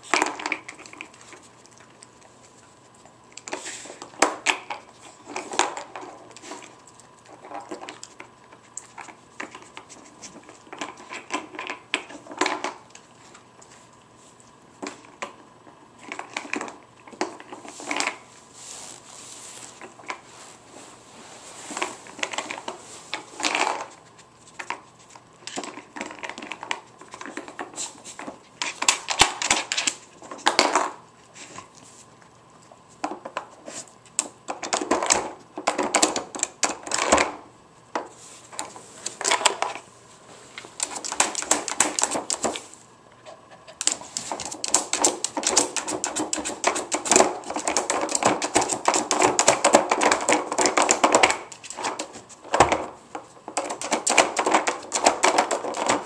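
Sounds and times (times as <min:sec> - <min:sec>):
plastic pieces knocking: 0:53.5 - 0:56.0.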